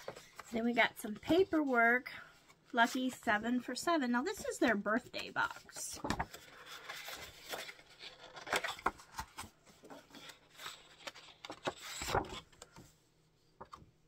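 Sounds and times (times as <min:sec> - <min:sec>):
paper rustling: 0:00.0 - 0:01.8, 0:04.3 - 0:12.9.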